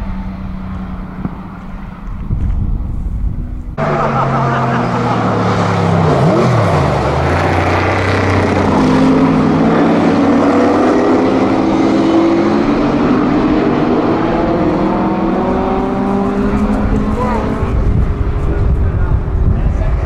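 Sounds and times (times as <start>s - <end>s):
race car engine passing and accelerating: 0.0s - 20.0s.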